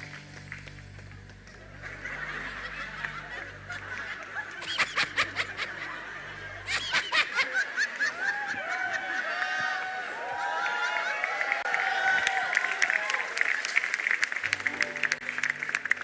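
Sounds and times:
low steady hum: 0:00.0 - 0:07.1
loud laughter: 0:01.8 - 0:11.5.

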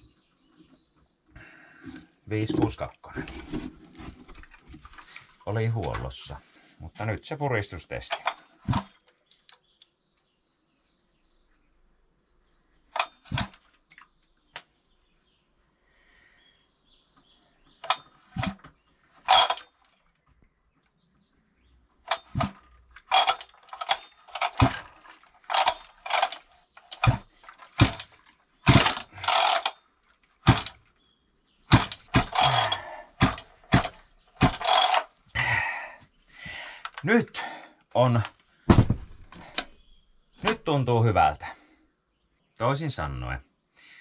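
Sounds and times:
chainsaw recoil starter pulled: 0:01.8 - 0:05.2, 0:08.0 - 0:08.9, 0:13.0 - 0:13.6, 0:19.2 - 0:19.8, 0:22.1 - 0:29.8, 0:30.4 - 0:30.9, 0:31.7 - 0:35.2.

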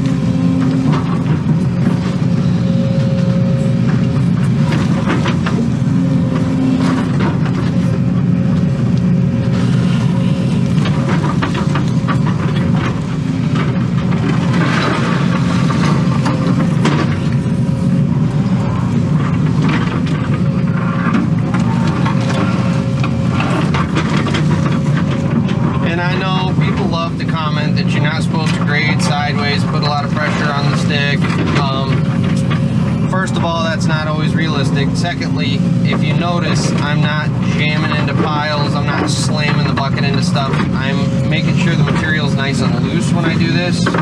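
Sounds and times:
diesel engine under load: 0:00.0 - 0:44.0
steady whine: 0:00.0 - 0:44.0
bucket clanking and scraping: 0:19.4 - 0:44.0.

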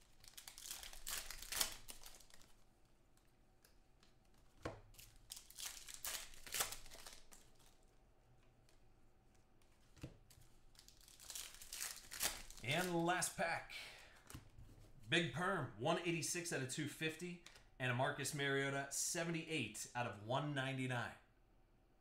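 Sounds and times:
plastic wrappers tearing and crinkling: 0:00.0 - 0:07.9, 0:10.2 - 0:13.0.

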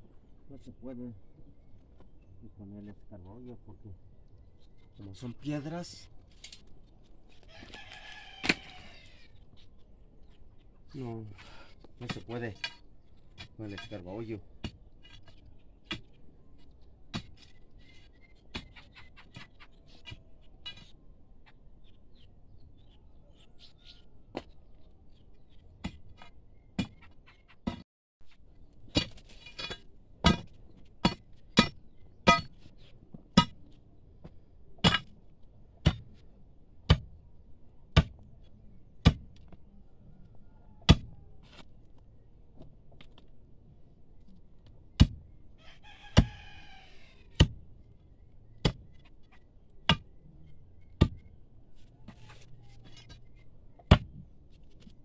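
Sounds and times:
rooster crowing: 0:07.5 - 0:09.3, 0:45.6 - 0:47.3
metal digging tool striking stony ground: 0:12.0 - 0:16.1, 0:28.8 - 0:33.7, 0:34.8 - 0:35.2, 0:35.8 - 0:36.2, 0:36.9 - 0:37.1, 0:39.0 - 0:39.5, 0:40.9 - 0:41.1, 0:45.0 - 0:45.2, 0:48.6 - 0:49.1, 0:49.9 - 0:50.1.

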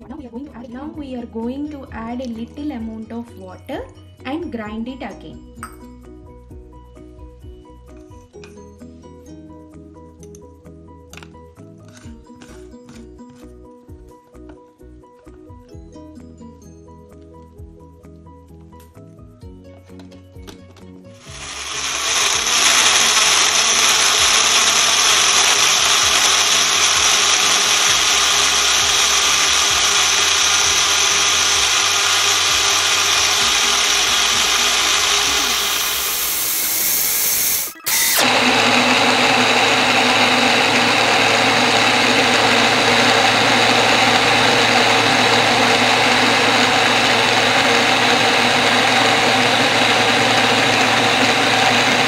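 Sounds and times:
blender grinding: 0:21.2 - 0:52.0.

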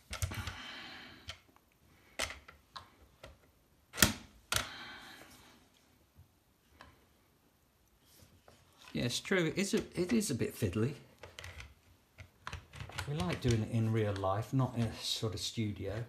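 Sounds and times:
plastic and metal parts knocking: 0:11.2 - 0:13.7.

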